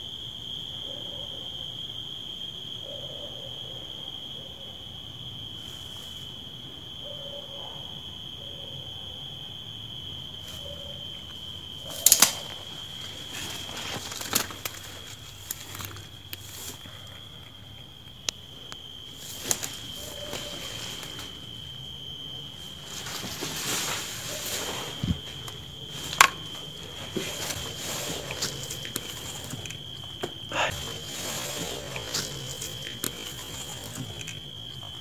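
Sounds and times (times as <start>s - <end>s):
sharp crackles and snaps: 11.8s - 16.9s
brushing through dry weeds: 22.6s - 30.0s, 30.7s - 34.4s
footsteps crunching over rubble: 22.7s - 35.0s.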